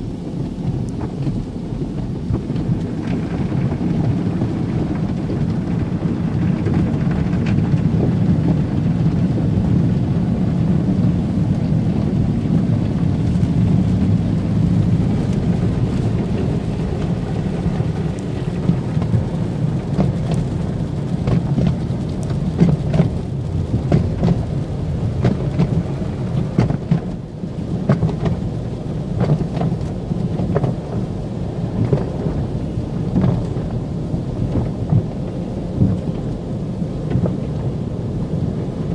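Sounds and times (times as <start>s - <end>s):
low rumble: 0.0s - 38.9s
water spraying on a car: 0.0s - 38.9s
water spatters and ticks: 14.8s - 31.1s.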